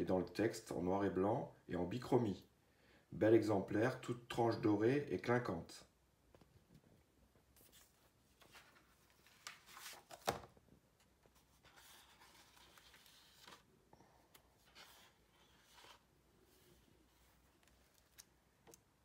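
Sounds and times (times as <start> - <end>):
book pages rustling: 7.4 - 19.0.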